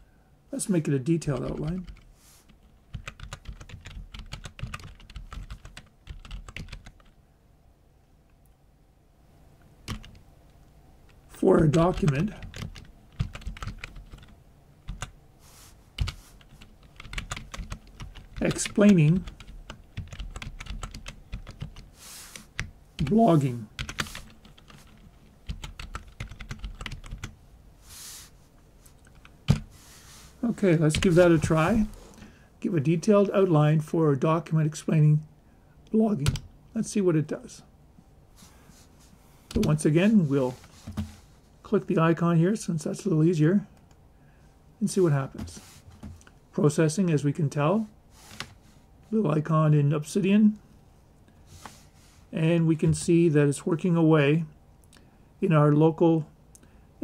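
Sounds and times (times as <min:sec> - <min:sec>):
typing on keyboard: 0:01.4 - 0:02.1, 0:02.9 - 0:07.1, 0:09.9 - 0:10.2, 0:11.9 - 0:14.3, 0:16.0 - 0:21.9, 0:23.8 - 0:27.3.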